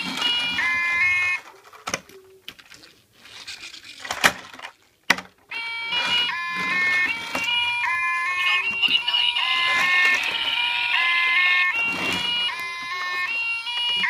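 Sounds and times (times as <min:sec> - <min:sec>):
toy two-tone siren: 0:00.0 - 0:01.5, 0:05.5 - 0:14.0
plastic toys knocking: 0:00.0 - 0:05.4.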